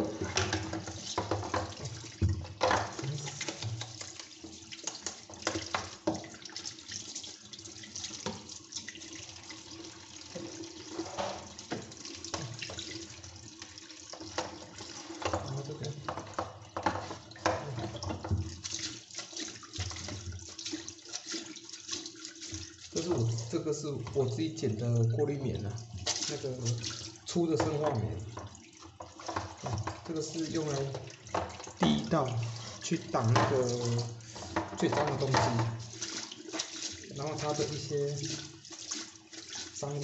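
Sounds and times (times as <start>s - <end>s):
plastic clattering in a basin: 0.0s - 6.4s, 14.1s - 21.6s, 25.9s - 39.8s
filter sponges being scrubbed: 0.0s - 7.3s, 10.3s - 40.0s
tap water running into a sink: 0.0s - 40.0s.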